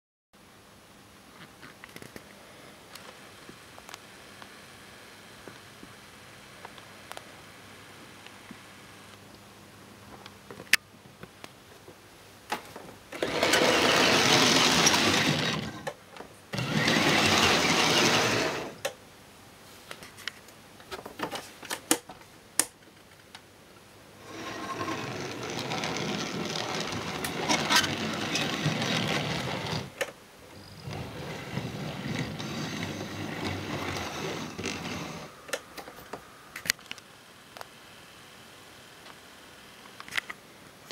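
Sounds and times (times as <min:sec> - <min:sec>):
model train motor whirring: 0:13.2 - 0:15.9, 0:16.5 - 0:18.8, 0:24.2 - 0:30.1, 0:30.8 - 0:35.4.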